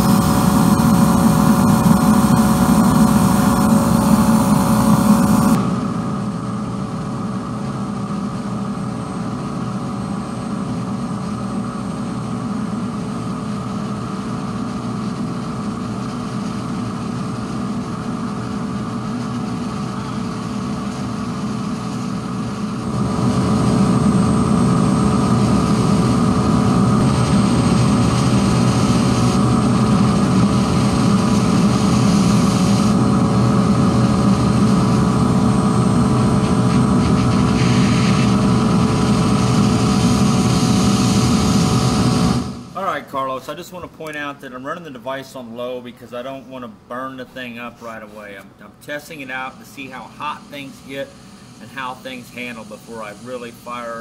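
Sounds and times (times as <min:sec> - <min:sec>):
burner and blower running: 0:00.0 - 0:43.0, 0:49.0 - 0:54.0
steam jets hissing: 0:49.2 - 0:54.0.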